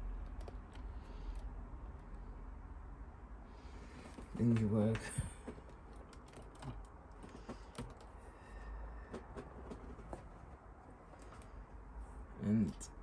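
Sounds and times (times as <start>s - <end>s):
plastic parts clicking and tapping: 4.1s - 8.2s.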